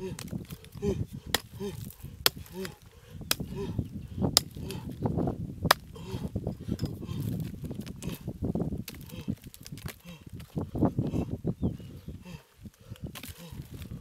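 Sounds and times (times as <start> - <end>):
hatchet chopping into dry mud: 1.3 - 3.7, 4.3 - 5.0, 5.7 - 6.2.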